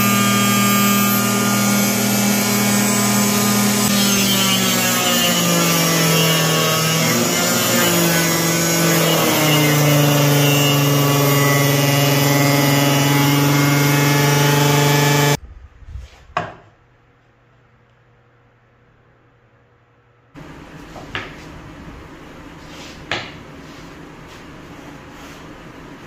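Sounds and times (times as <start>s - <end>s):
table saw whining: 0.0s - 15.4s.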